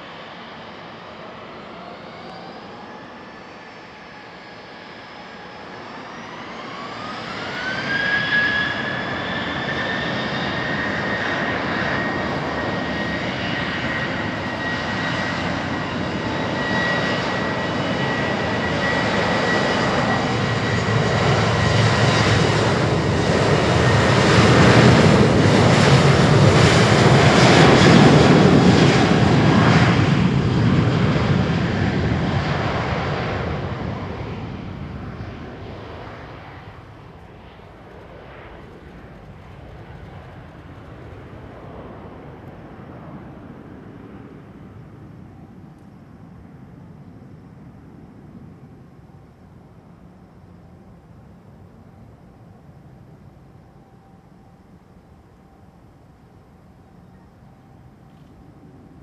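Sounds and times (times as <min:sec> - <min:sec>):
jet roar: 0:00.0 - 0:54.7
jet engines spooling up whine: 0:00.0 - 0:59.0.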